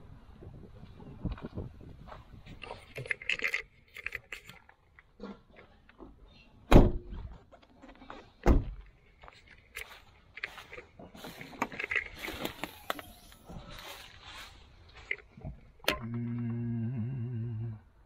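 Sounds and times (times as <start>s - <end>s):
parts clicking and rattling: 2.4s - 6.1s, 8.8s - 14.0s, 14.9s - 16.5s.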